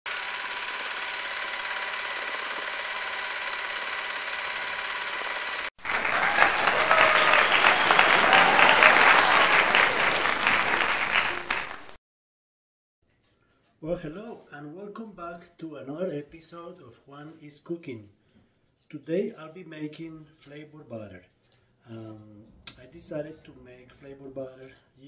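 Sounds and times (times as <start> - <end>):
crowd clapping and cheering: 5.7 - 12.0.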